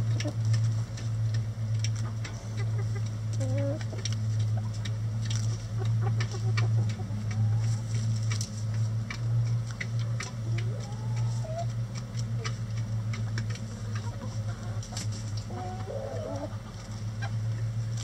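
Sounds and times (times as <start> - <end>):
hens clucking: 0.0 - 18.0
low hum: 0.0 - 18.0.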